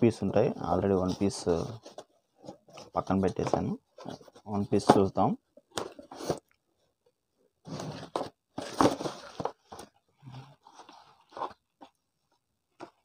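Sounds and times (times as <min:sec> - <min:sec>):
soft rustling and handling: 0:00.0 - 0:13.0
cardboard crunching and scraping: 0:07.7 - 0:09.9.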